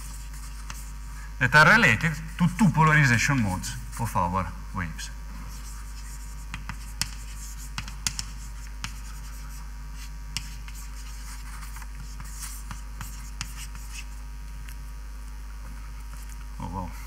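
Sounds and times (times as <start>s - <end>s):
writing on a board: 0.0s - 1.1s, 5.5s - 14.2s
low mains hum: 0.0s - 17.0s.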